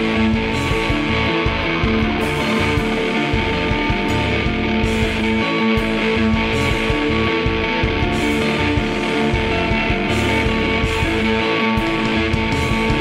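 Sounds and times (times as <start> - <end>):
instrumental rock music with guitar: 0.0 - 13.0.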